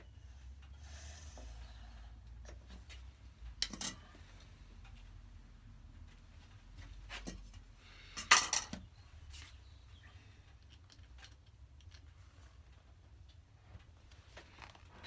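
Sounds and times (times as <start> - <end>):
tools clicking and knocking: 3.6 - 4.1, 8.2 - 8.9.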